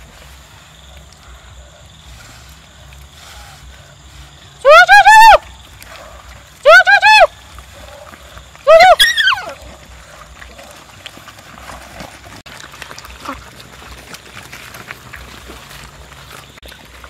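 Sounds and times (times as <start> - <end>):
dogs chewing and crunching: 9.4 - 17.0.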